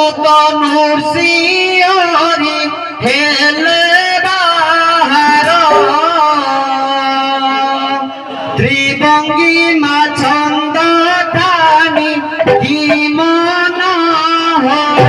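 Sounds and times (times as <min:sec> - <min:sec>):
man singing devotional melody: 0:00.0 - 0:15.0
harmonium notes: 0:04.7 - 0:07.3, 0:10.8 - 0:15.0.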